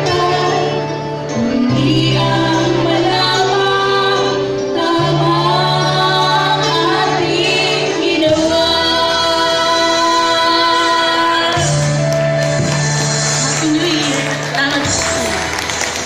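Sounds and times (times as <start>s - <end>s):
women singing through pa: 0.0s - 11.9s.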